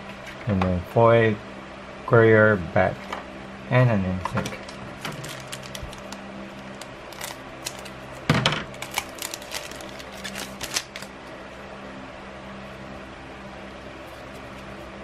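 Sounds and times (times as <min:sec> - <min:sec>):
cards being handled: 0:04.3 - 0:11.2, 0:14.0 - 0:15.0
foil wrapper crinkling: 0:04.6 - 0:11.2
foil pack tearing: 0:05.0 - 0:11.2.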